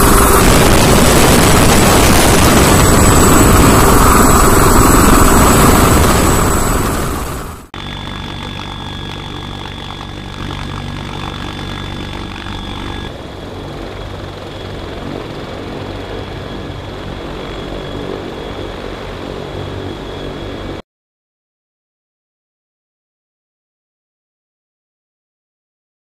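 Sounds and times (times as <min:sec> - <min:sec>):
helicopter rotor beating: 0:00.0 - 0:20.8
helicopter turbine whine: 0:00.0 - 0:20.8.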